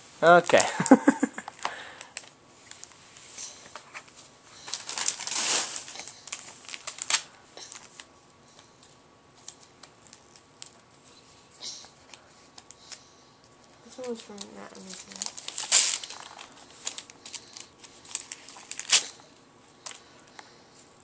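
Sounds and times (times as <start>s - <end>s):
wrapping paper crinkling and tearing: 3.9s - 8.1s, 9.4s - 10.9s, 13.8s - 20.1s.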